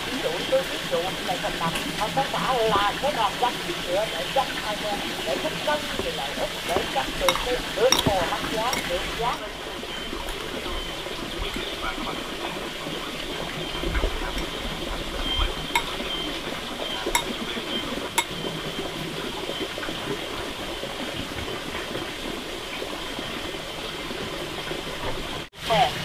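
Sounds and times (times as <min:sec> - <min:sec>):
running water: 0:00.0 - 0:26.0
metal spoon clinking ceramic bowl: 0:07.3 - 0:09.1, 0:15.8 - 0:16.0.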